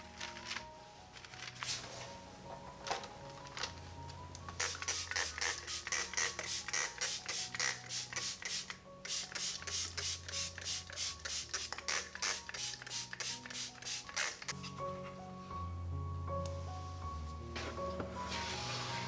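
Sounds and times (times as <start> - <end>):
faint background music: 0.0 - 19.0
spray bottle hissing: 4.6 - 14.5.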